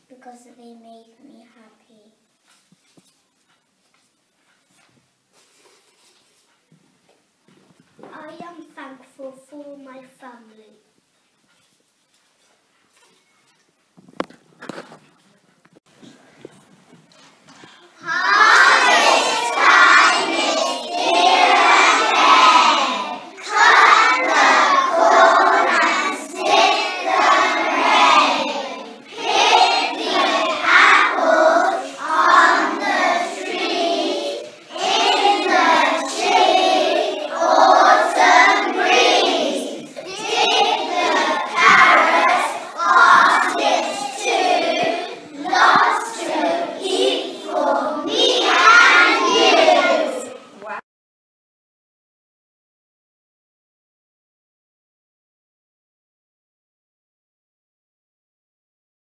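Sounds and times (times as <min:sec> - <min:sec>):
children singing in unison: 0:18.0 - 0:50.4.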